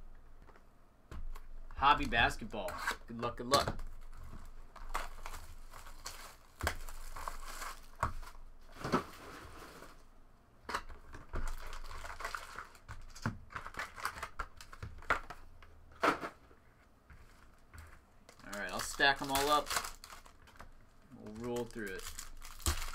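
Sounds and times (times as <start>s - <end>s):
plastic and foil crinkling: 3.8s - 10.1s, 11.1s - 15.4s, 17.1s - 22.9s.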